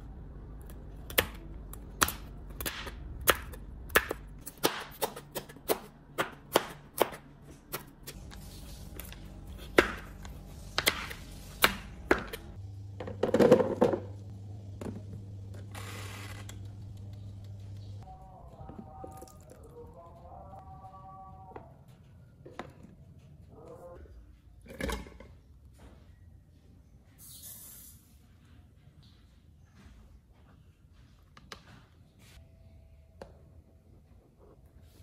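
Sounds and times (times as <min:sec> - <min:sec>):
low steady hum: 0:00.0 - 0:04.6, 0:05.8 - 0:27.1
knife chopping on plastic board: 0:02.0 - 0:07.9, 0:09.6 - 0:12.5.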